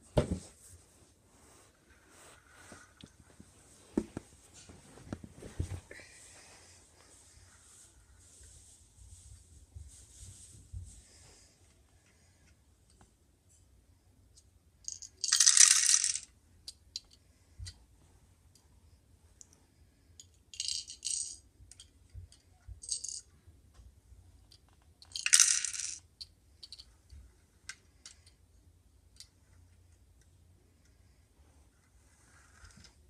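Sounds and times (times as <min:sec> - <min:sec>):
plastic toy parts rattling: 0:14.9 - 0:16.3, 0:20.2 - 0:23.3, 0:24.4 - 0:27.0.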